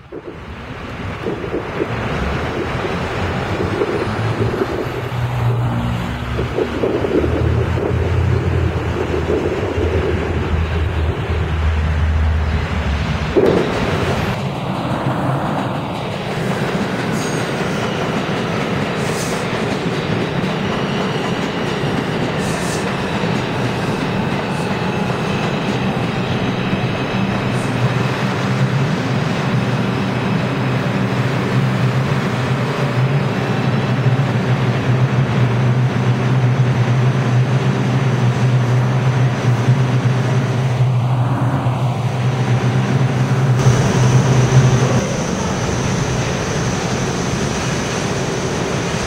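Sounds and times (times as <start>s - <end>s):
city traffic noise: 0.0s - 49.0s
subway train wheels on rail: 0.0s - 49.0s
bus driving past: 2.2s - 15.8s.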